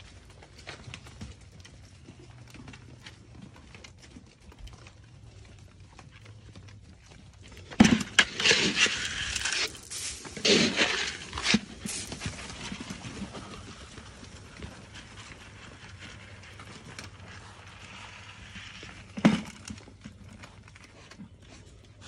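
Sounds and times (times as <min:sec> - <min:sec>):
deer hooves clicking on concrete: 0:00.0 - 0:22.0
dry corn poured onto concrete: 0:08.2 - 0:13.6.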